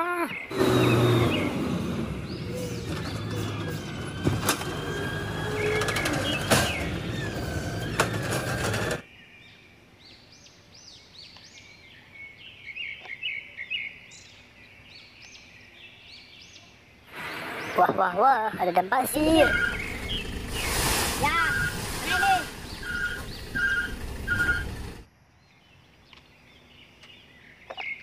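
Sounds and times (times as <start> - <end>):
birds chirping: 0.0 - 28.0
truck engine running: 0.5 - 9.0, 19.1 - 25.1.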